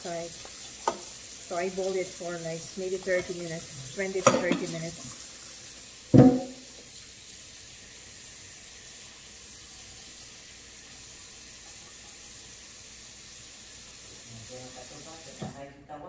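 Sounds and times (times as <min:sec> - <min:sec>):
faucet running into sink: 0:00.0 - 0:15.6.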